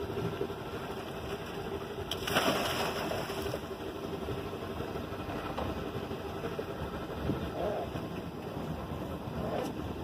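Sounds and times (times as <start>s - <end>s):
boat engine running: 0.0s - 10.0s
splash into water: 2.1s - 3.6s.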